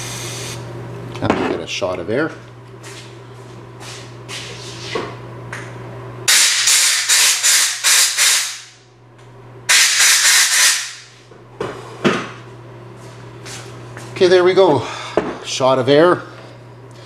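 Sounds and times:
compressed air blasts hissing: 0:06.3 - 0:08.6, 0:09.7 - 0:11.0.

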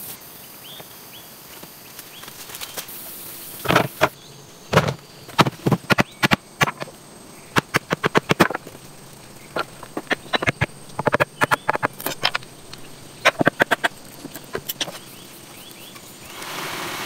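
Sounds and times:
machete chopping bamboo: 0:04.8 - 0:06.9.

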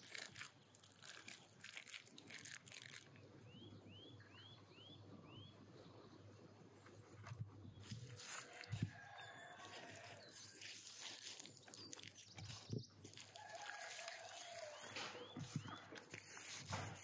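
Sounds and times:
hands squishing wet paste: 0:00.0 - 0:03.2, 0:07.8 - 0:17.0
small birds chirping: 0:01.1 - 0:17.0.

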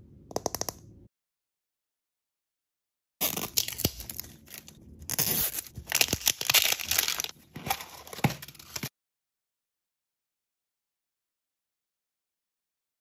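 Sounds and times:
plastic wrapper crinkling and tearing: 0:03.2 - 0:08.9.

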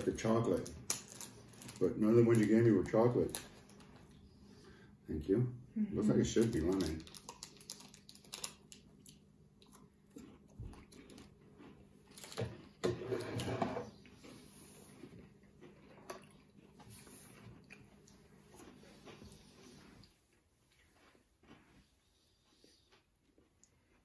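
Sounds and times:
wrapper crinkling: 0:00.0 - 0:03.9, 0:06.2 - 0:09.2.

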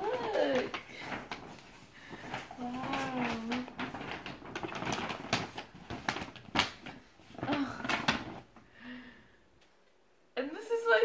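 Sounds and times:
paper crinkling and rustling: 0:00.0 - 0:08.7.

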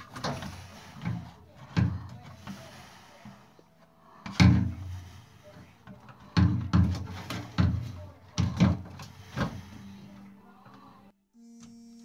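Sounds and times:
hollow knocks and clunks: 0:04.2 - 0:05.0, 0:05.8 - 0:09.6.

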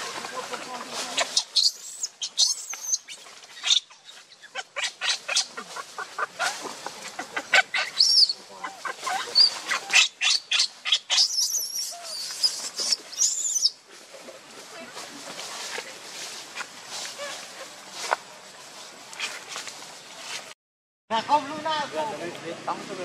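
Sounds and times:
rustling of dry leaves: 0:00.0 - 0:23.0
baby monkey squealing: 0:01.2 - 0:05.6, 0:07.1 - 0:13.8.

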